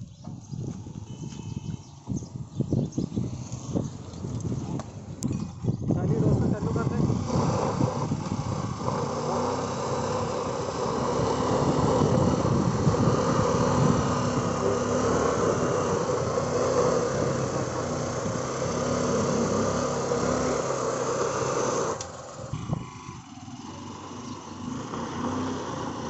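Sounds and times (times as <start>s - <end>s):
motorcycle engine straining: 0.0s - 26.0s.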